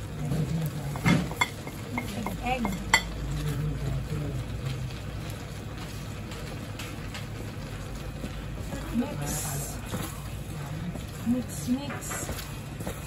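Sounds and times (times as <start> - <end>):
frying sizzle: 0.0 - 13.0.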